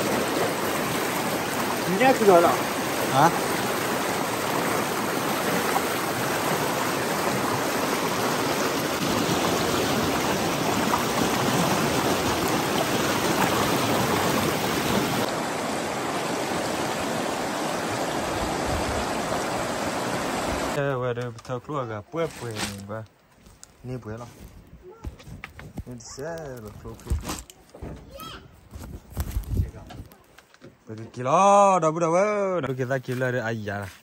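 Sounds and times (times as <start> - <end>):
stream rushing over boulders: 0.0 - 20.8.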